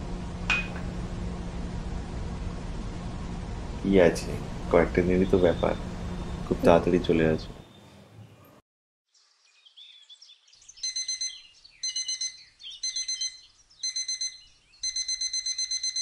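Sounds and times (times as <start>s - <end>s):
faint birds chirping: 4.6s - 15.6s
phone alarm beeping: 10.8s - 16.0s.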